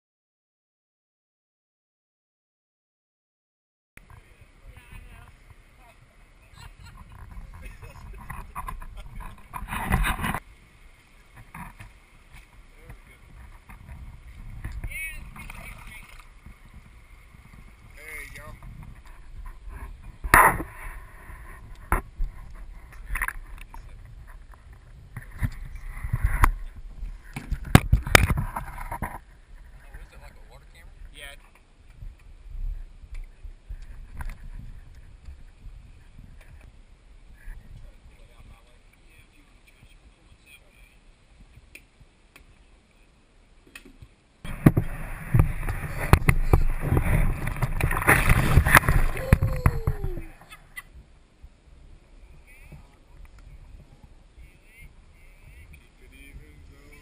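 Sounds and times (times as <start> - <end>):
water splashing against canoe: 4.2 - 32.2, 43.8 - 51.0.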